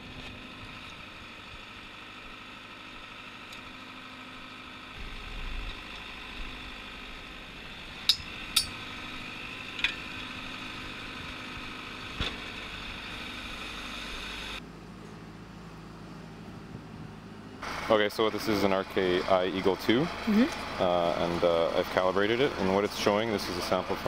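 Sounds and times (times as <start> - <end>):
drill rig engine whining: 3.3 - 14.6
sharp metal clinks: 8.1 - 8.8.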